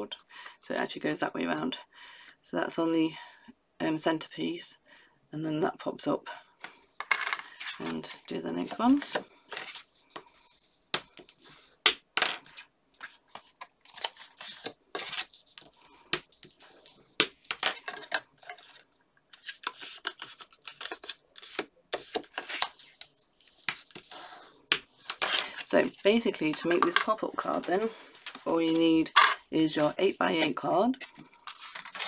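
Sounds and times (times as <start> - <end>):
card stock folding and creasing: 12.4 - 26.8, 31.0 - 32.0.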